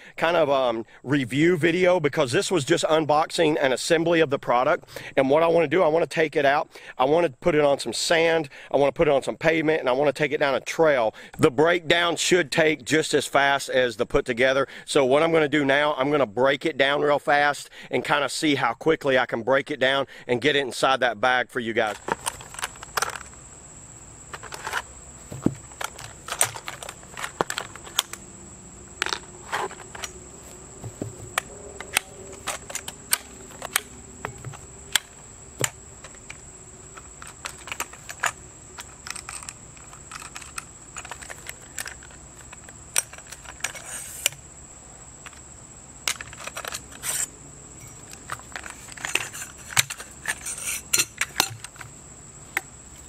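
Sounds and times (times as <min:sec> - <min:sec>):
kayak cart parts clicking and clanking: 0:21.8 - 0:23.5, 0:24.2 - 0:44.4, 0:45.2 - 0:52.7.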